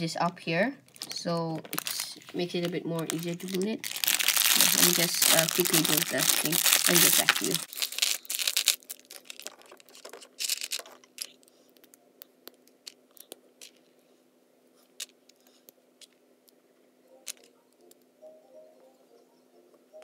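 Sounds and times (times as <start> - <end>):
plastic bag crinkling: 0.8 - 12.0.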